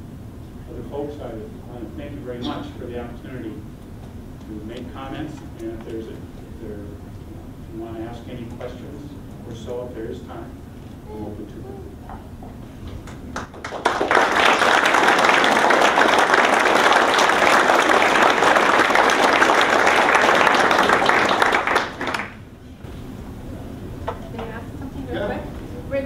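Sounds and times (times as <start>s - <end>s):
audience applauding: 13.0s - 22.5s.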